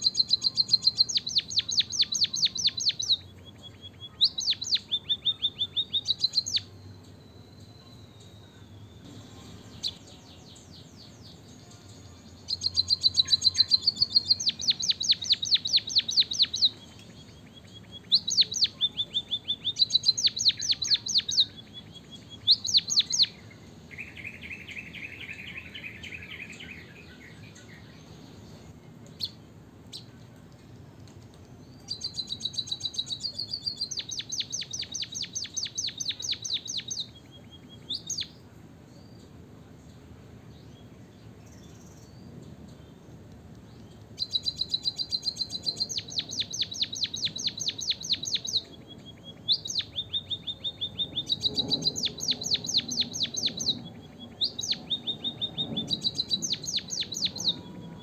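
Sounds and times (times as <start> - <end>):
low buzzy bird trill: 0.0 - 30.1, 44.2 - 58.0
bird chirping trills: 0.0 - 30.8, 31.4 - 39.4, 40.5 - 58.0.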